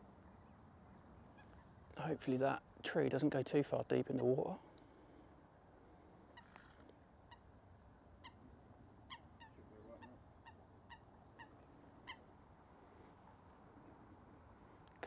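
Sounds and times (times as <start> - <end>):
low outdoor hush: 0.0 - 15.0
faint bird calls: 0.3 - 2.3, 4.1 - 14.1.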